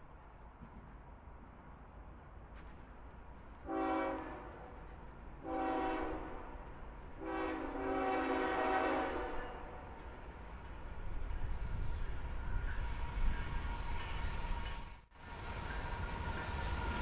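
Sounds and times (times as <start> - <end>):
locomotive air horn blasts: 3.7 - 4.5, 5.4 - 6.5, 7.2 - 9.8.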